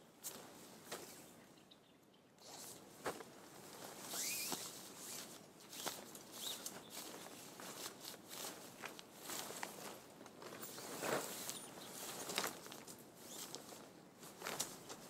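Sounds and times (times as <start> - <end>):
rustling: 2.4 - 15.0
scraping rustle: 2.4 - 15.0
footsteps: 2.5 - 12.7.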